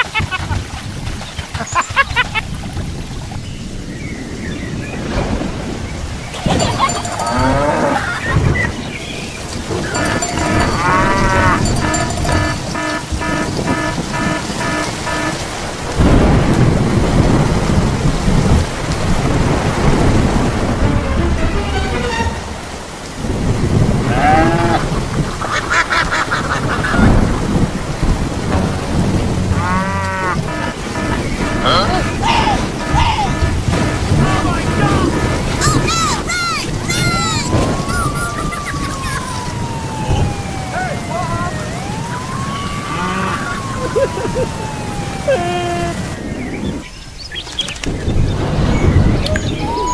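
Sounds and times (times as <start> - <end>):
steady rain falling: 0.0 - 49.9
low thunder rumbles: 2.6 - 21.6, 22.5 - 47.2, 47.8 - 49.9
farm animal calling: 6.4 - 8.8, 9.5 - 15.5, 29.5 - 39.6, 40.3 - 43.8
goose honking: 9.8 - 15.7, 29.4 - 39.2.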